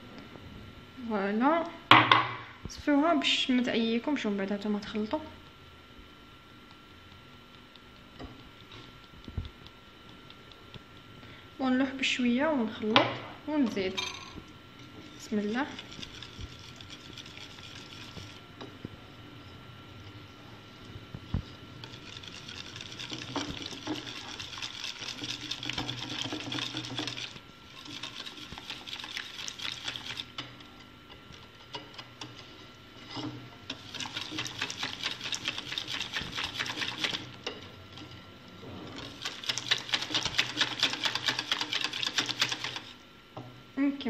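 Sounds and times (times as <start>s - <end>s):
wire whisk beating batter in glass bowl: 15.2s - 18.5s, 21.4s - 30.7s, 33.0s - 38.2s, 38.8s - 43.0s.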